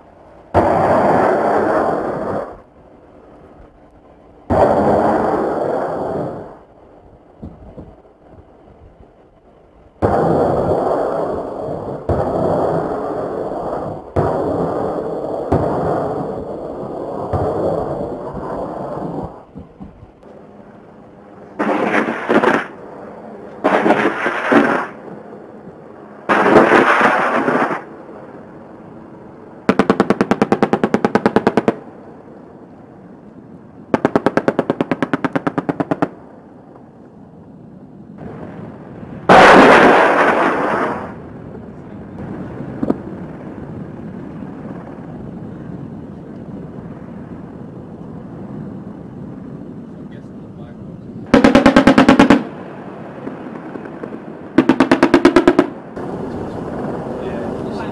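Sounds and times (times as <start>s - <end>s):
rocket fire blasts: 0.0s - 3.0s, 4.4s - 8.1s, 9.0s - 20.3s, 21.3s - 28.8s, 29.4s - 32.6s, 33.8s - 36.5s, 38.1s - 57.9s
loud explosion blast: 38.2s - 41.4s.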